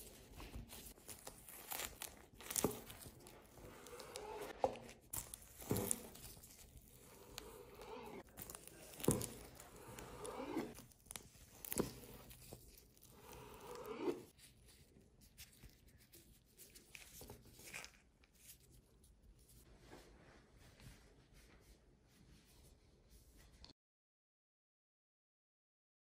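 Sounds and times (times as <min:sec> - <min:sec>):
knife slicing seaweed wrap: 0:00.0 - 0:14.2.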